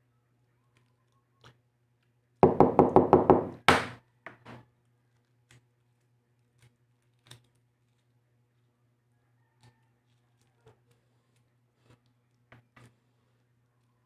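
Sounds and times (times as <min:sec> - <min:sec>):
egg rapping on tabletop: 0:02.4 - 0:04.0.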